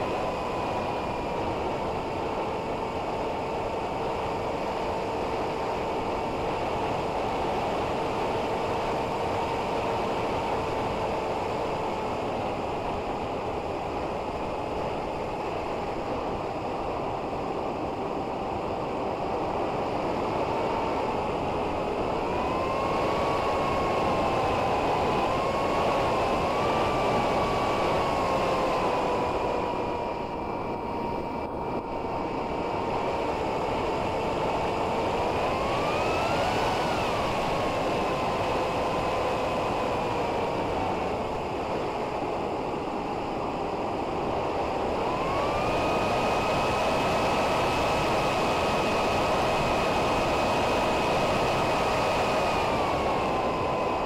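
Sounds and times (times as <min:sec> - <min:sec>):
electric motor and propeller whining: 0:00.0 - 0:54.0.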